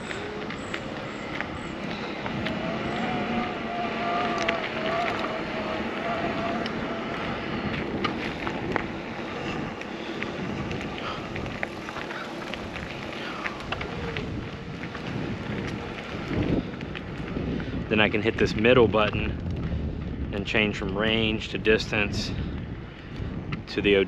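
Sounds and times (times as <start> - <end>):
electric motor whine: 0.0 - 17.5
bike tyre and frame rattle: 0.0 - 24.0
wind on microphone: 0.0 - 24.0.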